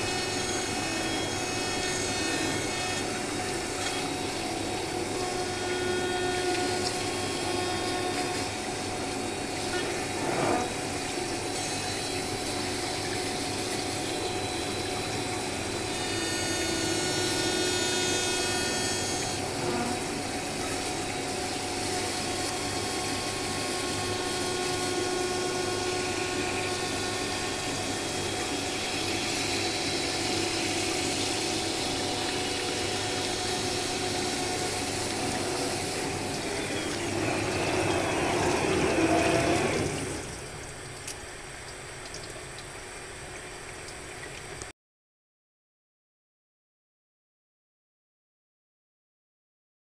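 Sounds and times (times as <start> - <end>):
milling spindle whining: 0.0 - 40.5
tool grinding glass: 10.1 - 10.8, 15.9 - 20.1.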